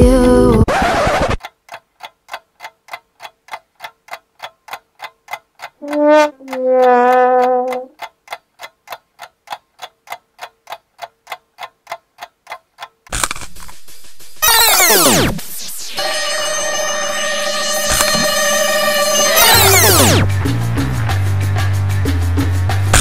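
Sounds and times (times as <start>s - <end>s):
clock ticking: 0.0s - 0.7s, 1.4s - 13.4s, 17.6s - 20.6s
brass instrument note: 5.8s - 7.7s, 15.8s - 20.3s.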